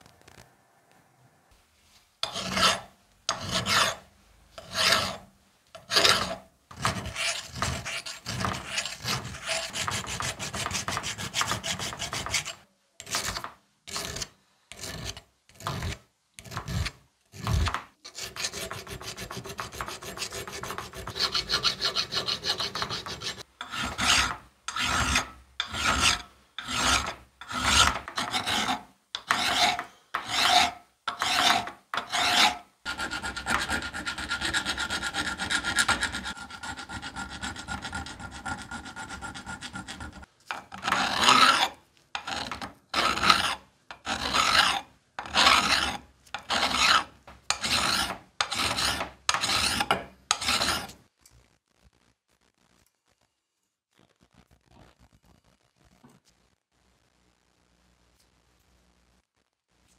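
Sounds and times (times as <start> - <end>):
hand file rasping on metal: 2.2 - 4.0, 4.6 - 5.2, 5.8 - 50.9.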